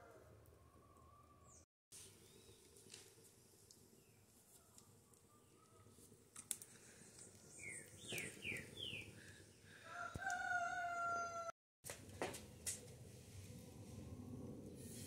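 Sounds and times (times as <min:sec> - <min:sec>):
rooster crowing: 0:09.8 - 0:11.6.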